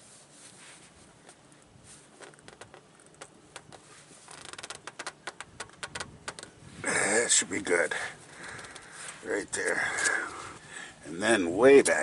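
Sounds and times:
small clicks and creaks: 1.2 - 6.6, 8.2 - 10.5.

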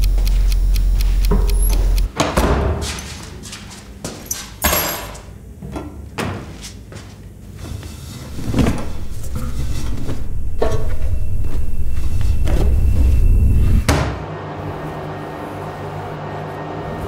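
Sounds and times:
low steady drone: 0.0 - 2.1, 8.4 - 17.0.

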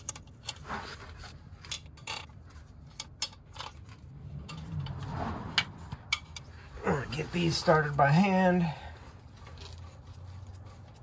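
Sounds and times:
metal bolts clinking: 1.6 - 5.0.

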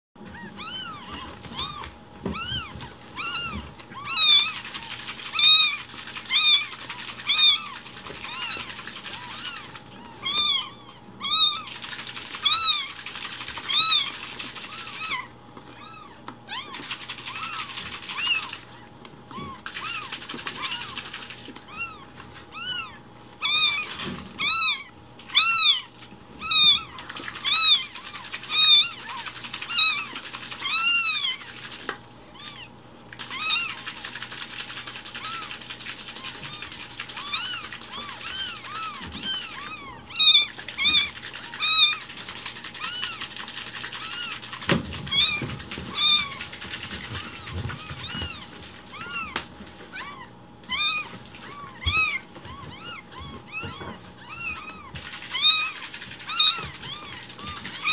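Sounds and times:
kittens mewing: 0.2 - 57.9.

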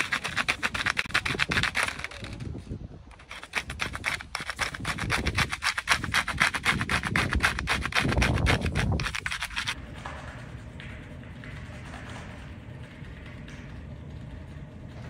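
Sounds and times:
chalk rasping on paper over gravel: 0.0 - 2.4, 3.1 - 9.8.

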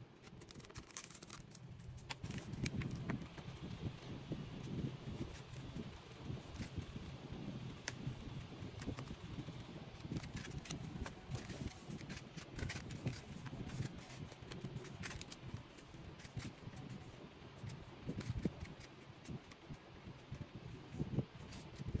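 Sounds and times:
plastic card sleeves clicking: 0.2 - 3.4.

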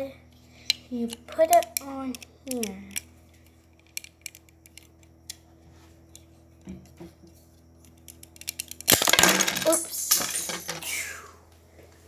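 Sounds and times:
plastic bricks clicking: 8.0 - 10.8.

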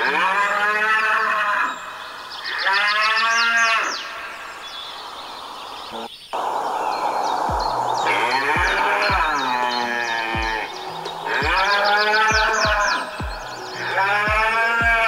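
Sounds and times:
cattle mooing: 0.0 - 1.9, 8.0 - 15.0
small birds chirping: 0.0 - 15.0
steady rushing noise: 6.4 - 9.5.

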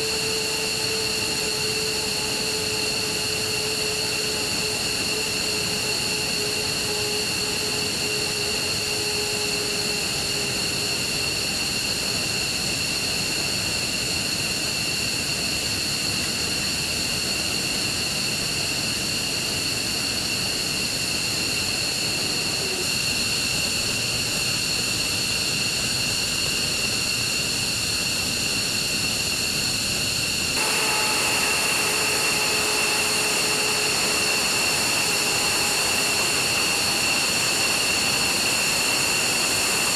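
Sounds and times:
jet turbines whining: 0.0 - 39.9.

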